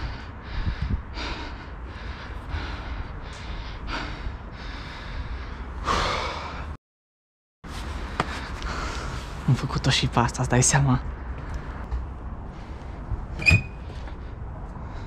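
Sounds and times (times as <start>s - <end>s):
person breathing hard: 0.0s - 6.8s, 8.0s - 9.4s.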